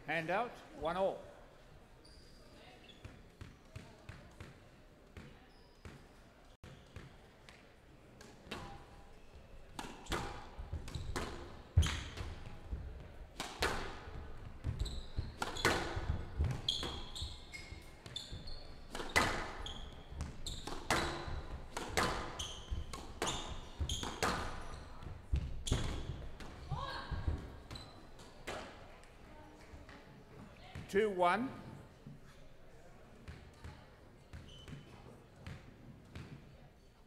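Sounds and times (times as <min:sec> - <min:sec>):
shoes squeaking on court floor: 0:02.0 - 0:04.2, 0:05.2 - 0:07.2, 0:14.6 - 0:28.6, 0:34.3 - 0:36.9
squash ball cracking off racquets: 0:14.6 - 0:17.1, 0:18.3 - 0:24.6.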